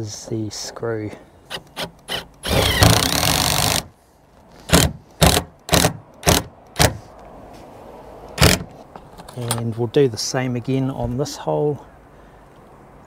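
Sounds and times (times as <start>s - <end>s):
impact driver driving screw: 1.5s - 3.9s, 4.7s - 7.0s, 8.4s - 8.7s.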